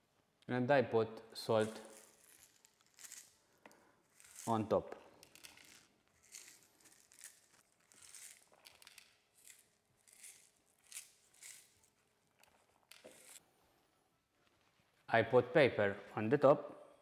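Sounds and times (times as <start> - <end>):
salt grains rustling: 1.6 - 4.6, 5.3 - 12.0.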